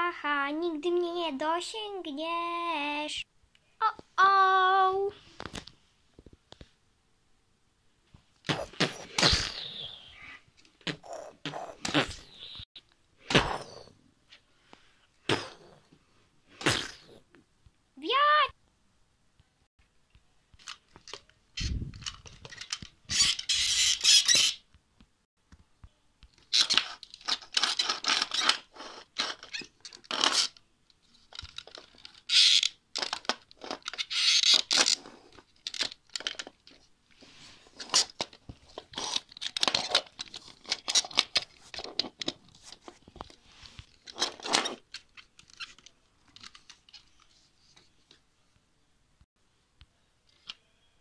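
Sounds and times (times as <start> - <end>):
plastic toys scraping and clicking: 20.5 - 24.6, 26.3 - 48.0.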